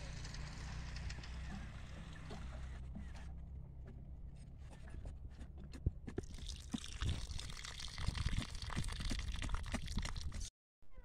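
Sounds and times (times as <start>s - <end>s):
water pouring onto soil: 6.2s - 10.5s.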